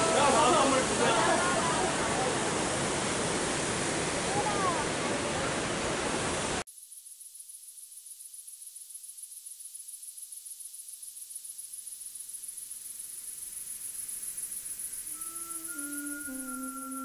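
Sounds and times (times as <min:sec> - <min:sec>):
rushing waterfall: 0:00.0 - 0:06.6
faint hiss: 0:00.0 - 0:17.0.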